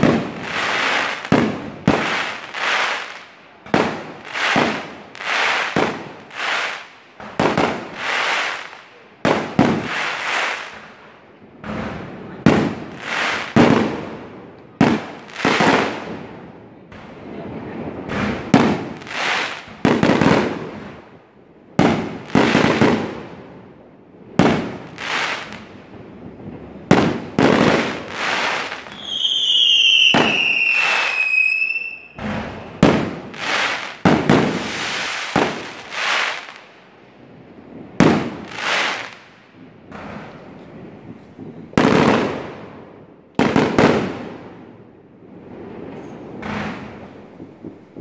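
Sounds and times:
fireworks bursting with crackle: 0.0 - 48.0
falling firework whistle: 28.4 - 32.9.

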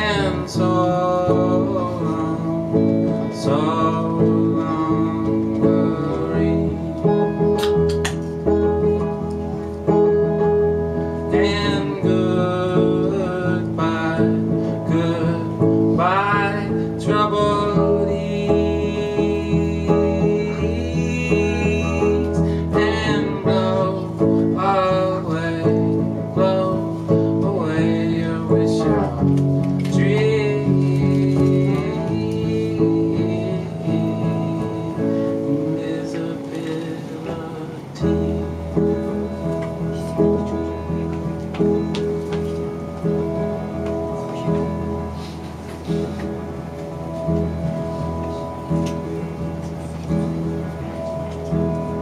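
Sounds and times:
man singing: 0.0 - 9.1, 10.0 - 46.1
amplified guitar: 0.0 - 52.0.

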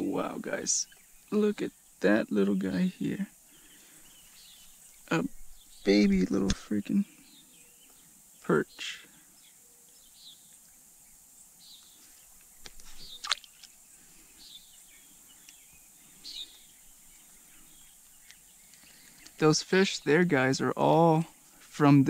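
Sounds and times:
faint bird chirps: 0.0 - 21.9
fish splashing into pond: 12.6 - 13.8.

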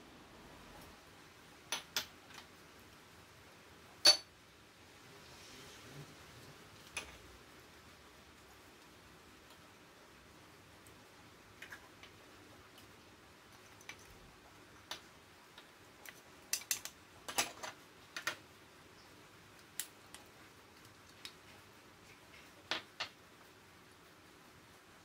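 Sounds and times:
dishes tapping glass bowl: 4.0 - 4.3.

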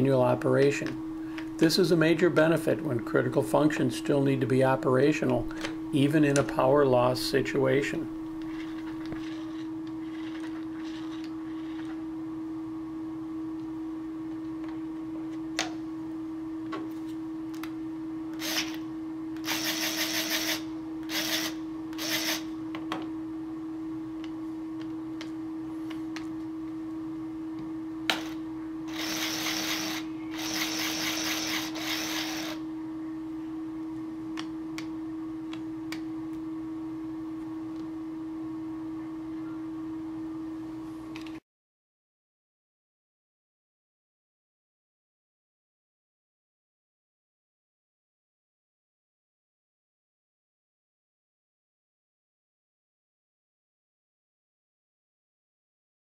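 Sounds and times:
steady hum: 0.0 - 41.3
electric actuator motor running: 8.1 - 12.0, 18.3 - 22.6, 28.1 - 32.7.

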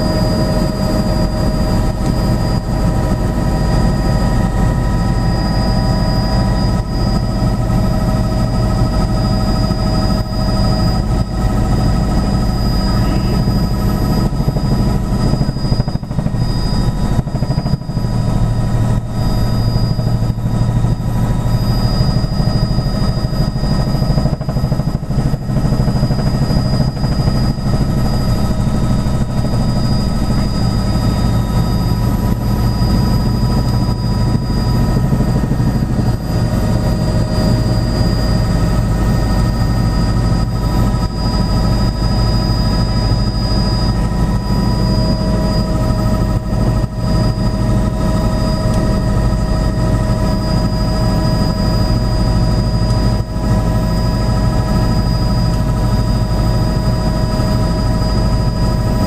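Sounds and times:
helicopter engine drone: 0.0 - 59.0
high whine: 0.0 - 59.0.

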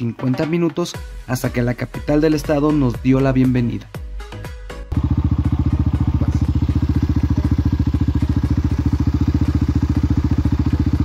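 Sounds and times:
motorcycle engine running: 4.9 - 11.0.

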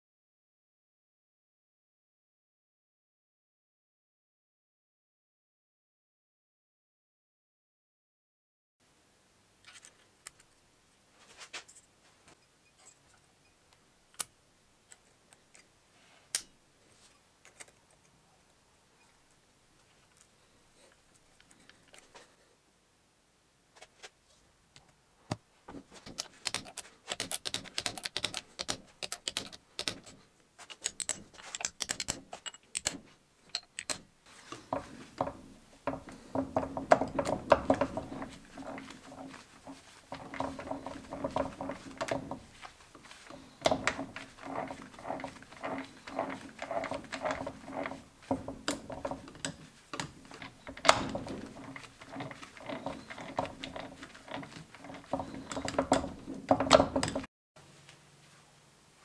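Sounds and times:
metal clicks and clatter: 26.0 - 57.3
gearbox humming and rattling: 34.6 - 57.3.

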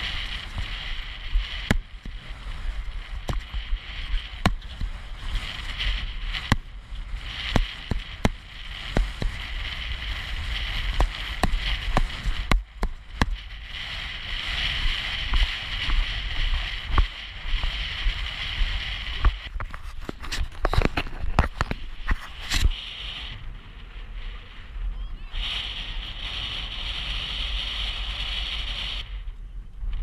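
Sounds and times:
low rumble: 0.0 - 30.0
wind buffeting microphone: 0.0 - 30.0
hooves and tack knocking: 10.2 - 13.4.

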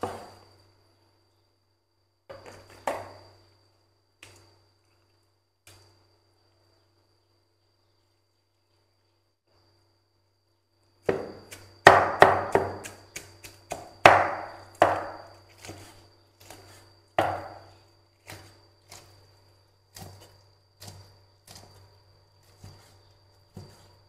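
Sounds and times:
knife chopping on board: 11.1 - 17.6.

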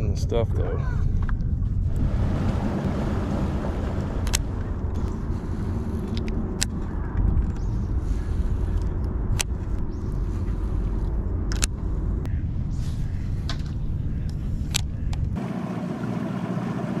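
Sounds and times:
low rumble: 0.0 - 15.4
sharp clicks: 11.0 - 11.8.

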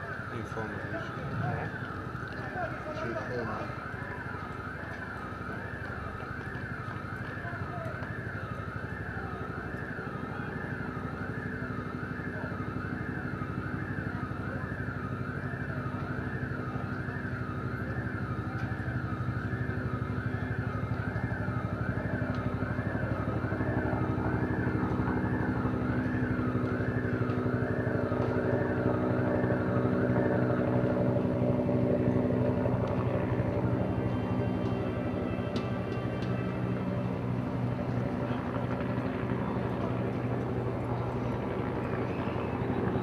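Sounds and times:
ambulance siren wailing: 0.0 - 43.0
vehicle engine running: 20.2 - 43.0.

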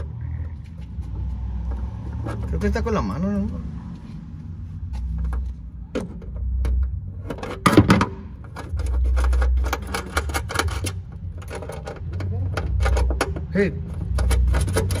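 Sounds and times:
low rumbling: 0.0 - 15.0
metal clatter: 5.0 - 15.0.

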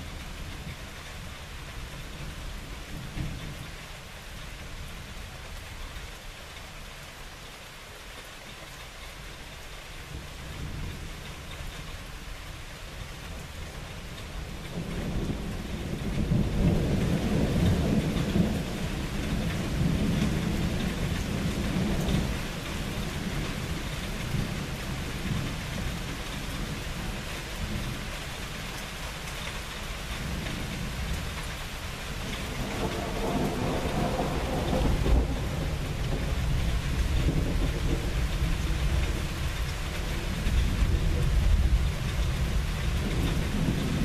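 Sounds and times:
steady rain falling: 0.0 - 44.0
thunder rumbling: 32.2 - 44.0.

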